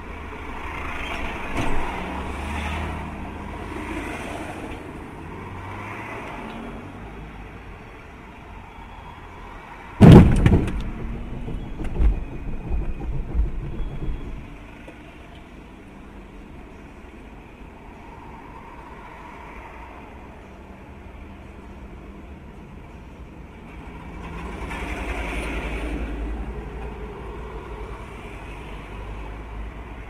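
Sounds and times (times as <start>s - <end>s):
car humming in traffic: 0.0s - 30.0s
irregular knocks: 10.0s - 14.7s
loud sudden bang: 10.0s - 14.7s.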